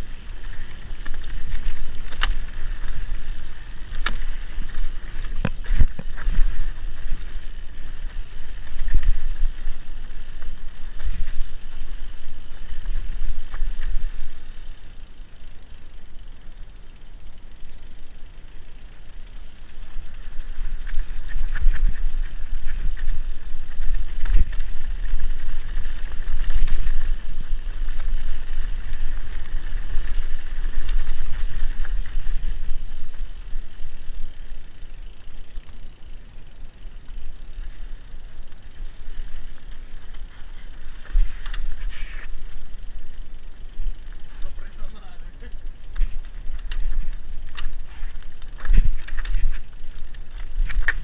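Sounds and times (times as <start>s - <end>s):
bike tyres rumbling on dirt: 0.0s - 51.0s
bike knocks and rattles: 0.3s - 14.2s, 44.0s - 51.0s.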